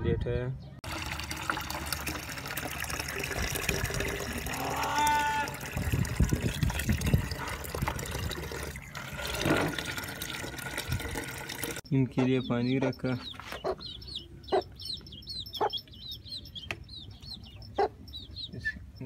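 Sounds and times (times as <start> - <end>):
water pouring into plastic bottle: 0.8 - 11.8
farm animal call: 4.5 - 5.6, 12.4 - 16.6.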